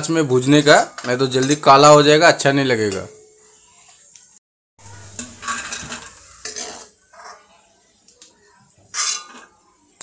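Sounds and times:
faint frying sizzle: 0.0s - 10.0s
steel ladle scraping metal pan: 4.9s - 7.5s, 8.9s - 9.6s.

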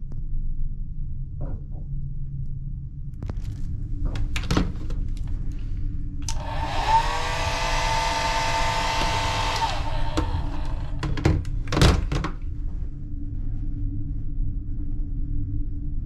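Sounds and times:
hair dryer motor winding down: 6.2s - 11.3s
hair dryer running: 6.2s - 11.3s
hair dryer knocks: 6.3s - 12.1s.

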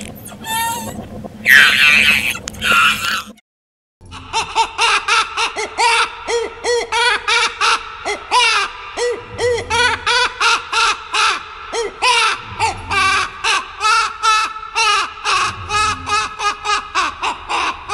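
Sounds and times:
creature chirping calls: 0.2s - 3.4s
creature distress call: 0.3s - 3.4s.

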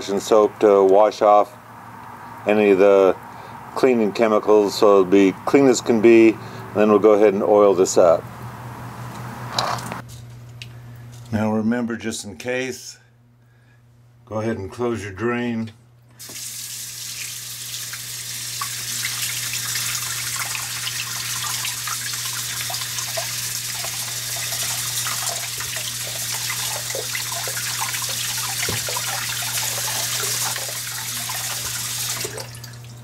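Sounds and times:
water running from faucet into sink: 16.2s - 33.0s
water splashing over metal: 18.5s - 33.0s.

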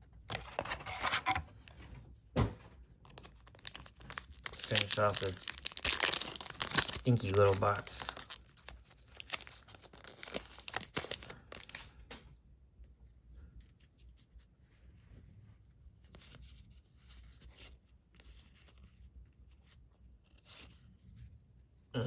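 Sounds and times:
foil wrappers crinkling and tearing: 3.1s - 12.0s
cards rustling and clicking: 3.1s - 12.2s.

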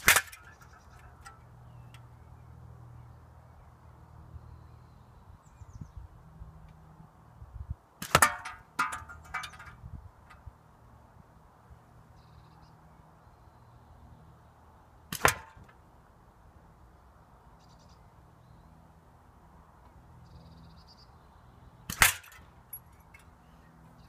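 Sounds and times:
air rifle pellet hitting tin can: 0.0s - 1.4s, 8.0s - 9.8s, 15.2s - 15.7s, 21.9s - 22.4s
metallic knocks from can: 8.0s - 9.8s.

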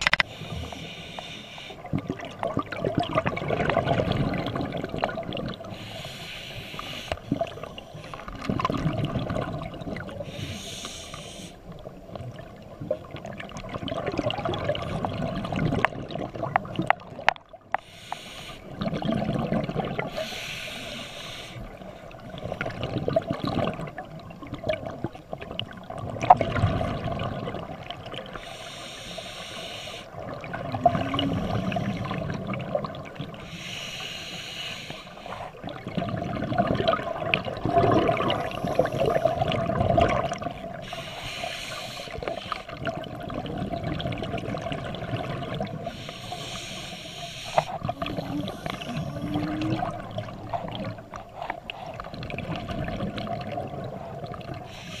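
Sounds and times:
regulator inhale hiss: 0.2s - 1.9s, 5.7s - 8.2s, 10.2s - 11.7s, 17.8s - 18.8s, 20.1s - 22.1s, 28.3s - 30.2s, 33.4s - 35.6s, 38.2s - 39.5s, 40.8s - 42.8s, 45.8s - 49.5s, 54.6s - 55.0s
exhaled bubbles burbling: 1.8s - 5.9s, 7.2s - 10.4s, 11.7s - 17.8s, 18.7s - 20.4s, 22.1s - 28.4s, 30.1s - 33.5s, 35.5s - 40.9s, 42.1s - 46.6s, 47.5s - 54.8s.

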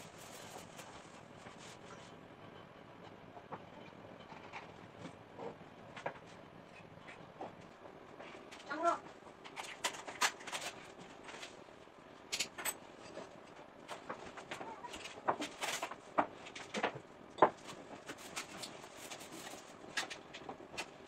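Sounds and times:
objects clattering in kitchen: 12.3s - 13.3s.

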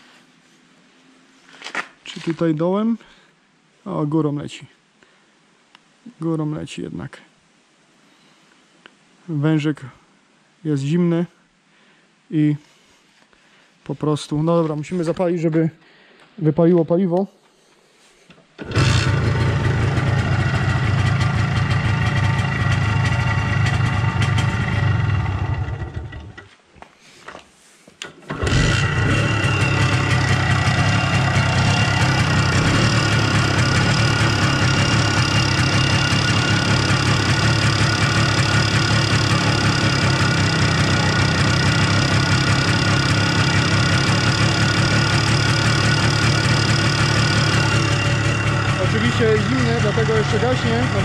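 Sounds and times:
engine starting: 18.6s - 21.2s, 24.2s - 26.5s, 28.0s - 41.6s
two-stroke engine idling: 18.6s - 26.4s, 28.3s - 51.0s.

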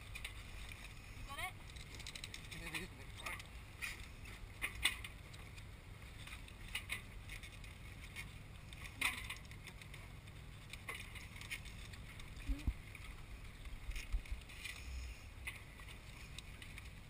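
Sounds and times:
steady low rumble: 0.0s - 17.0s
metallic clinks and rattles: 0.2s - 5.2s.

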